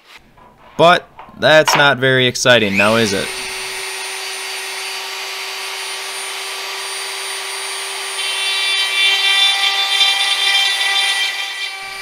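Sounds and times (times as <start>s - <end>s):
bit grinding into wood: 2.6s - 5.0s
rotary tool whine: 2.7s - 10.1s, 10.7s - 12.0s.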